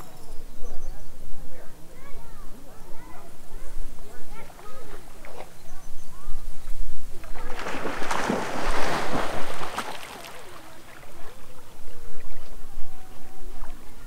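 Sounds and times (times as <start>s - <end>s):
low voices: 0.0s - 14.0s
water splashing: 7.2s - 14.0s.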